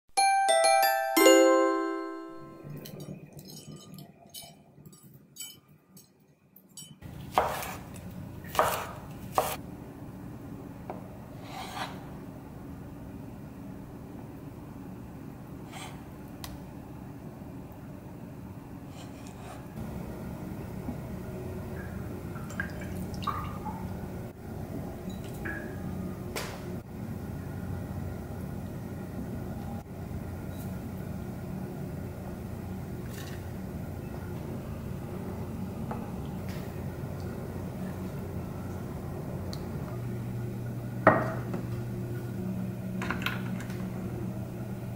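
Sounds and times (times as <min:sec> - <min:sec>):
knife chopping on cutting board: 0:07.3 - 0:09.6.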